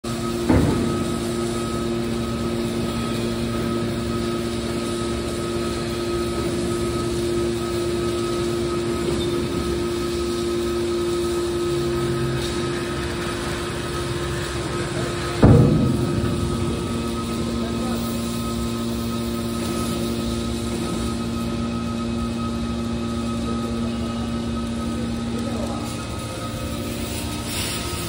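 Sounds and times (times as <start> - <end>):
hydraulic unit hum and whine: 0.0 - 28.0
sharp knock: 15.4 - 17.6.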